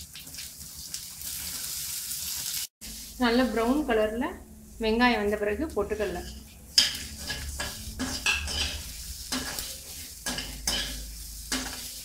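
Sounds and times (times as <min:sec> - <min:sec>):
food sizzling in oil: 0:00.0 - 0:03.9, 0:05.1 - 0:12.0
spatula scraping a pan: 0:05.9 - 0:12.0.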